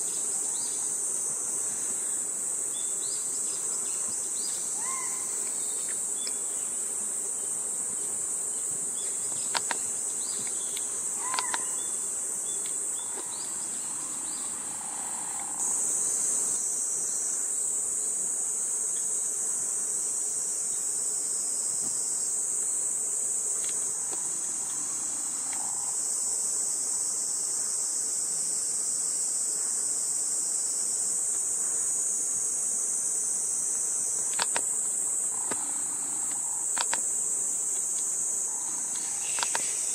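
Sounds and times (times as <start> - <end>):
high-pitched insect chorus: 0.0 - 39.9.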